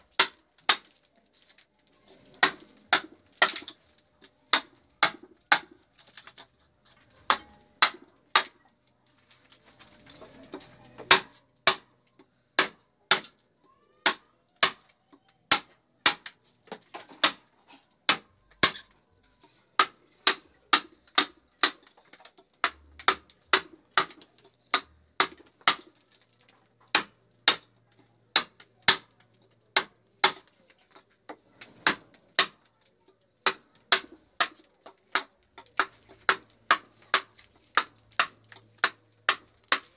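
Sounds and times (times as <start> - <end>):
mallet striking chisel: 4.5 - 5.8, 7.2 - 8.6, 11.0 - 11.9, 12.6 - 13.3, 18.1 - 18.8, 26.9 - 27.7, 28.3 - 29.1, 31.8 - 32.6, 33.4 - 39.9.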